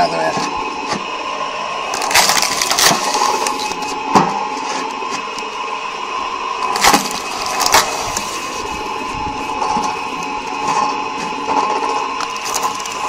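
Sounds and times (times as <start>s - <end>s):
log splitter motor whining: 0.0s - 13.0s
wood cracking as it splits: 1.9s - 4.0s, 6.6s - 8.8s, 12.2s - 13.0s.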